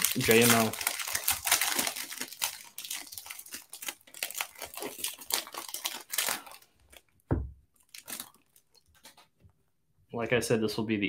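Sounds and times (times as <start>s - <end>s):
plastic wrapper crinkling: 0.0s - 9.4s
dull thump: 7.3s - 7.6s.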